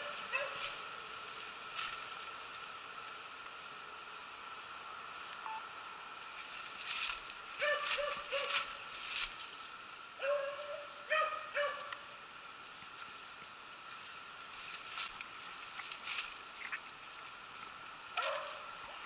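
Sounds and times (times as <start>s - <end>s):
dog barks: 0.3s - 0.7s, 7.6s - 8.7s, 10.2s - 11.9s, 18.2s - 18.7s.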